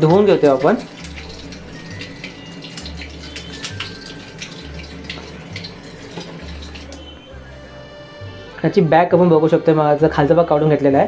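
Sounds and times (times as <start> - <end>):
tap water running into sink: 0.0 - 7.2
background music with low beat: 0.0 - 11.0.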